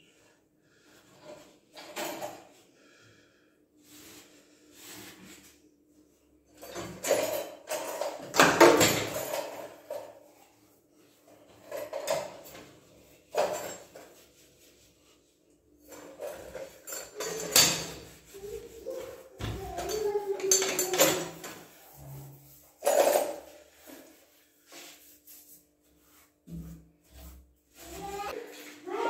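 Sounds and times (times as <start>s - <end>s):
kitchen utensils clattering: 6.6s - 10.2s, 11.5s - 14.2s, 15.8s - 24.1s.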